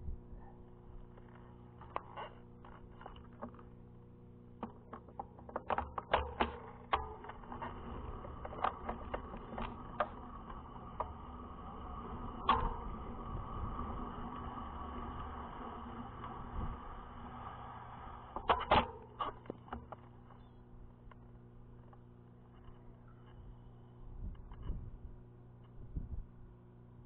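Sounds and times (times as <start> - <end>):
low steady hum: 0.0 - 27.0
sharp clicks and knocks: 4.6 - 17.4, 18.2 - 23.4.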